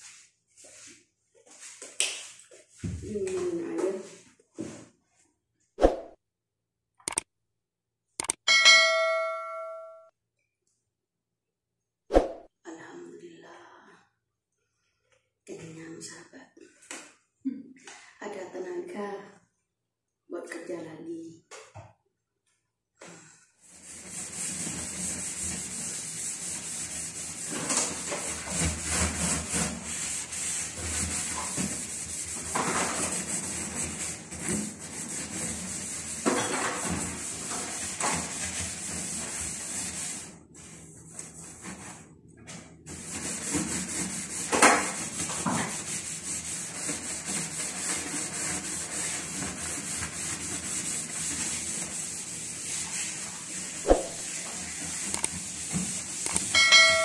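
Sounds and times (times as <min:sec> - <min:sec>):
scrubbing on hard surface: 0:00.0 - 0:04.9, 0:23.6 - 0:42.1, 0:42.9 - 0:56.5.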